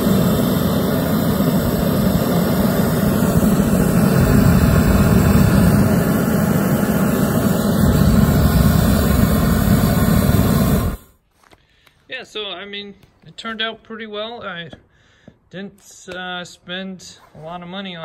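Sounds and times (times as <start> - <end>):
gas burner flame rushing: 0.0 - 11.2.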